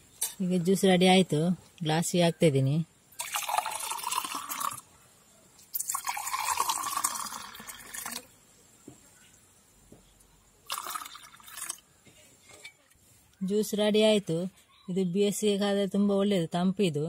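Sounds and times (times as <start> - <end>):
liquid pouring into a glass: 3.1 - 4.8, 5.7 - 8.3, 10.6 - 11.8.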